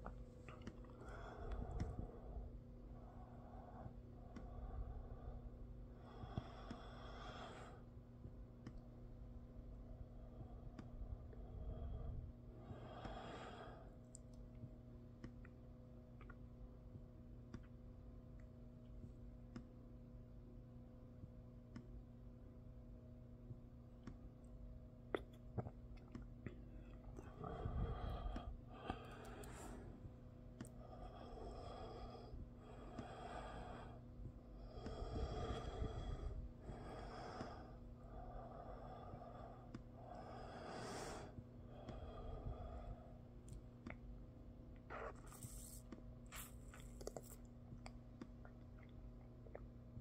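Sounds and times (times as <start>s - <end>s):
low hum: 0.0s - 50.0s
person breathing through the nose: 27.2s - 30.0s, 34.6s - 43.2s, 44.9s - 47.2s.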